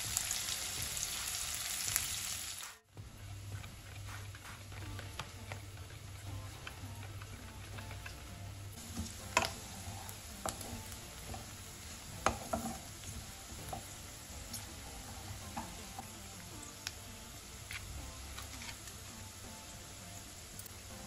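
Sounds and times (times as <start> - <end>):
onions sizzling in oil: 0.0 - 21.0
spatula scraping a pan: 8.8 - 15.8.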